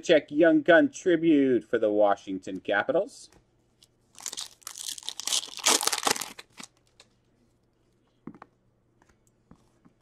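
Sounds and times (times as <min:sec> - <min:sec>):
wrapper tearing and crinkling: 0:04.2 - 0:07.1.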